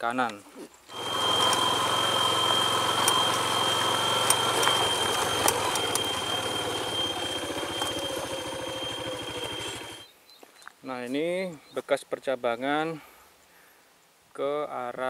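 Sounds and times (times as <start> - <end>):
small engine slowing to idle: 0.9 - 10.1
steady high whine: 0.9 - 10.1.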